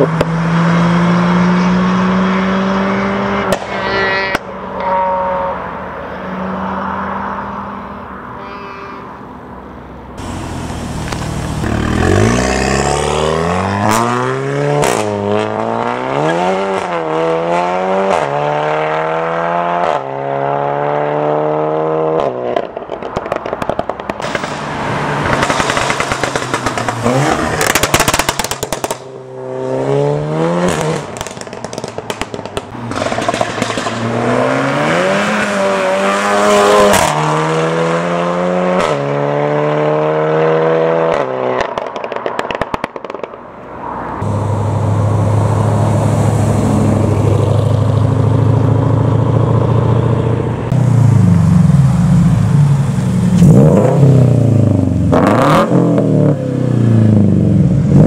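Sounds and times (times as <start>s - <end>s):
car engines revving: 0.0s - 58.0s
exhaust crackles and pops: 10.2s - 12.7s, 22.5s - 24.6s, 25.2s - 29.1s, 30.7s - 34.0s, 41.6s - 43.5s.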